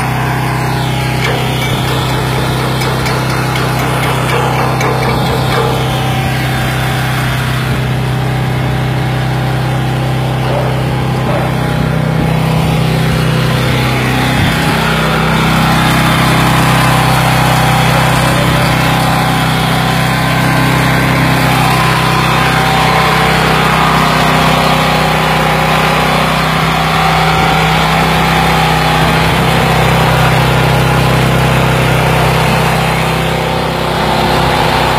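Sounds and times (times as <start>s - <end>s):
generator engine running: 0.0s - 34.9s.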